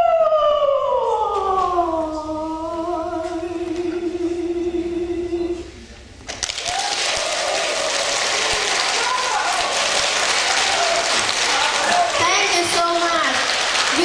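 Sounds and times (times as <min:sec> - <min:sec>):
audience applauding: 0:06.3 - 0:14.0.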